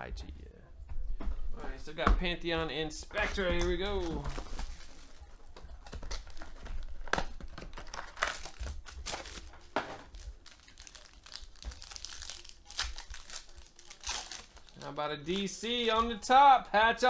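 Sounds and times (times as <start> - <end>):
foil pack crinkling and tearing: 3.2 - 5.3, 5.9 - 15.4.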